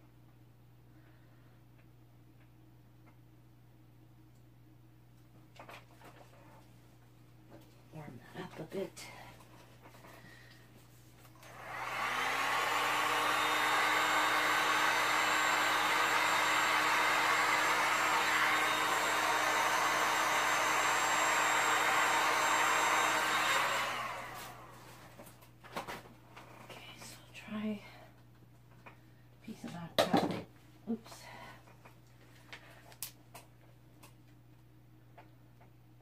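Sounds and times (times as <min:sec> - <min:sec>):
heat gun fan whirring: 0:09.8 - 0:26.1.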